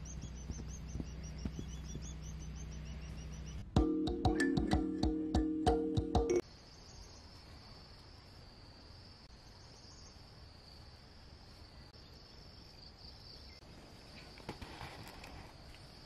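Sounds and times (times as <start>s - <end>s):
insects chirping: 0.0s - 3.7s, 6.4s - 16.0s
brief rustle: 14.2s - 15.9s.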